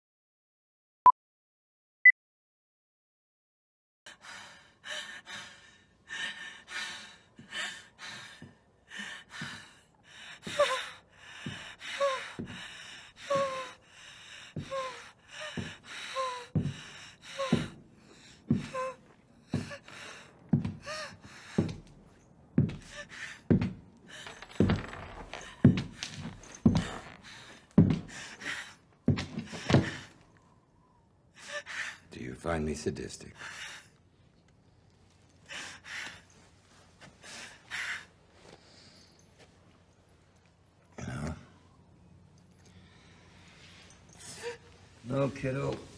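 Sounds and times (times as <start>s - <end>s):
heeled boots on hard floor: 20.5s - 28.3s.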